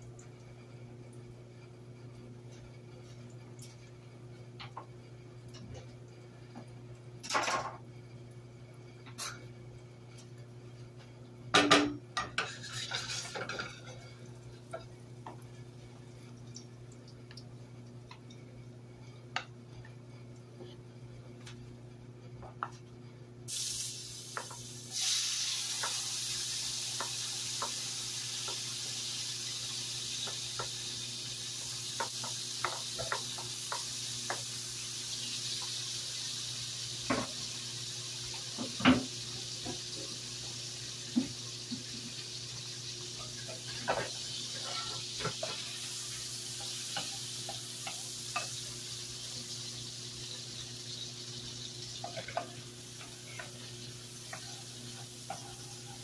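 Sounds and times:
vegetables sizzling in hot oil: 0:12.4 - 0:13.9, 0:23.5 - 0:56.0.

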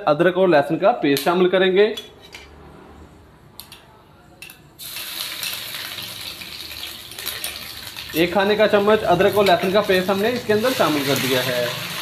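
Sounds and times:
hot oil sizzling: 0:04.8 - 0:12.0.

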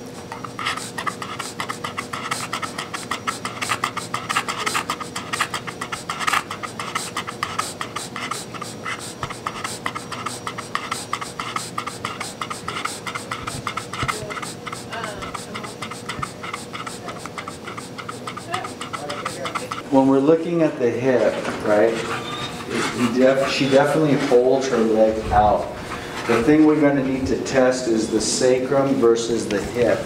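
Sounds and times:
dog panting: 0:00.7 - 0:19.8, 0:21.8 - 0:24.4.

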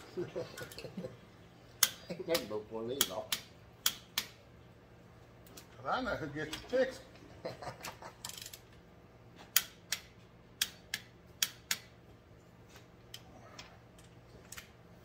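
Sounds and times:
ratchet wrench clicking: 0:08.2 - 0:08.7.

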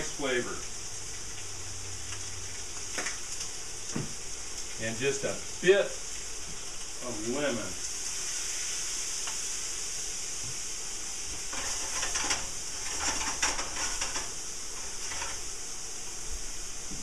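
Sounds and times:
peppers sizzling in frying pan: 0:00.0 - 0:17.0
stirring in pan: 0:06.0 - 0:17.0.

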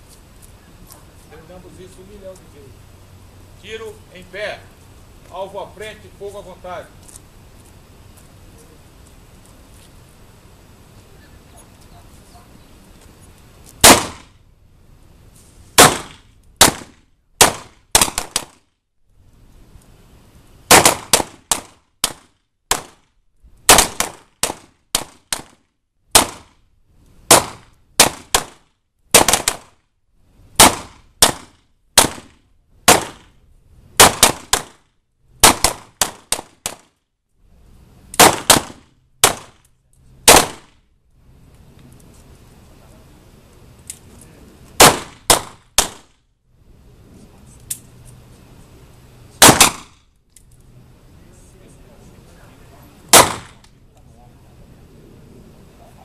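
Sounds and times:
handgun shots: 0:13.8 - 0:14.3, 0:15.8 - 0:18.6, 0:29.2 - 0:29.7, 0:30.6 - 0:33.3, 0:34.0 - 0:34.8, 0:35.4 - 0:36.9, 0:38.2 - 0:39.6, 0:40.3 - 0:40.7, 0:44.8 - 0:46.1, 0:49.4 - 0:50.0, 0:53.1 - 0:53.7.

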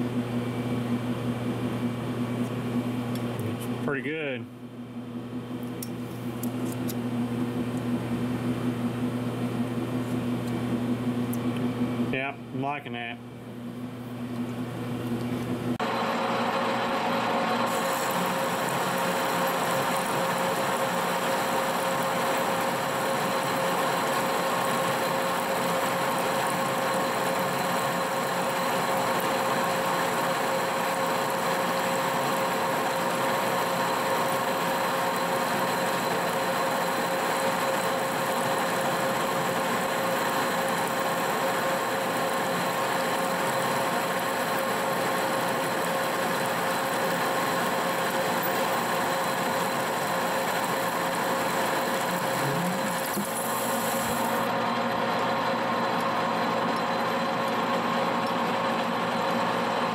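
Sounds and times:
lathe cutting steel: 0:15.8 - 0:58.2
lathe machine whine: 0:15.8 - 0:59.9.

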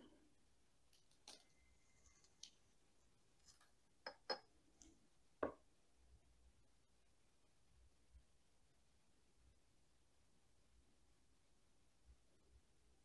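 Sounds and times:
soil grains tapping a pot: 0:04.0 - 0:04.5.

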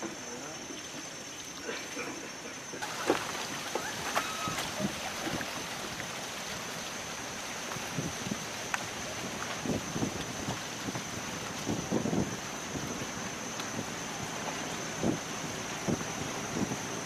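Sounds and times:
sharp splashes and knocks: 0:02.8 - 0:13.8
water splashing around rowboat: 0:02.8 - 0:17.0.

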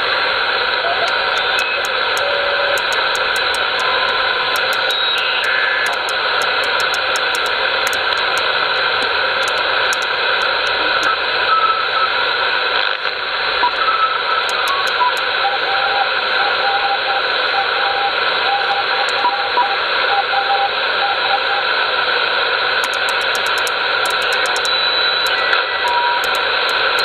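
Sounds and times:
radio receiver static hiss: 0:00.4 - 0:11.8, 0:12.6 - 0:15.4, 0:18.8 - 0:19.4, 0:22.5 - 0:27.0
radio whistles at different pitches: 0:00.9 - 0:12.5, 0:13.5 - 0:21.8, 0:22.8 - 0:27.0
tuning dial clicks: 0:01.1 - 0:11.2, 0:14.4 - 0:15.3, 0:19.0 - 0:19.3, 0:22.8 - 0:27.0.

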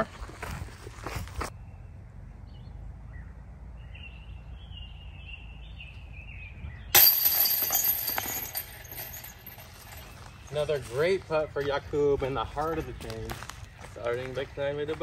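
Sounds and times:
disc hitting metal chains: 0:07.0 - 0:10.7.

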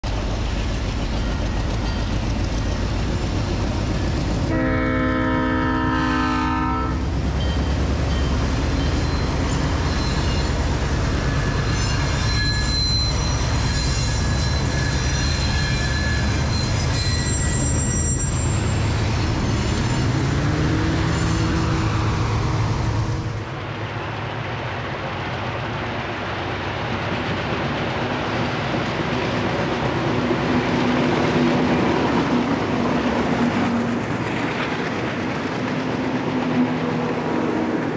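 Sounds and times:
diesel locomotives rumbling: 0:00.0 - 0:37.9
thin high squeals: 0:08.6 - 0:20.4.

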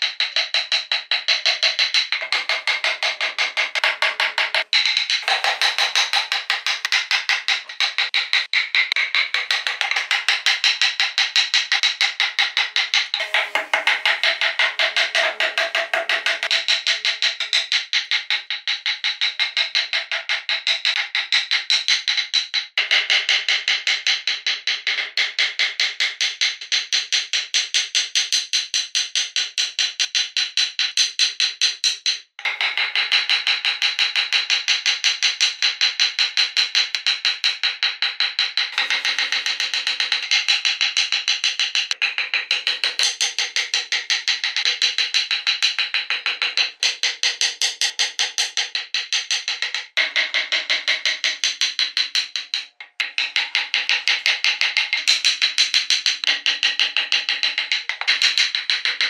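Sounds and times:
rapid sharp taps: 0:00.0 - 0:22.5, 0:32.4 - 0:59.0
chisel tapping into wood: 0:02.2 - 0:08.9.

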